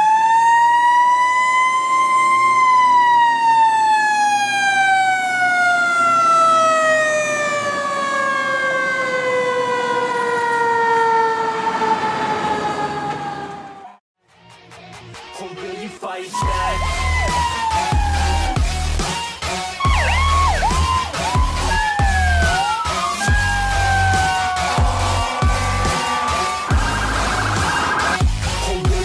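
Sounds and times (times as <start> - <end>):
fire engine siren wailing: 0.0 - 14.0, 16.4 - 29.0.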